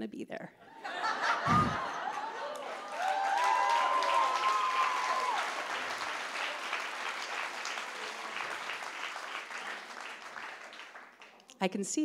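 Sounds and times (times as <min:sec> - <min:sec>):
audience applauding: 0:01.4 - 0:11.5
vocal cheers: 0:02.8 - 0:05.6.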